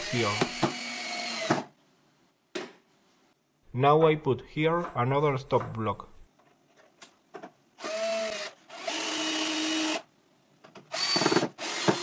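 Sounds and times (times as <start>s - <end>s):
cordless drill driving screws: 0.0s - 1.6s, 7.8s - 10.0s, 10.9s - 12.0s.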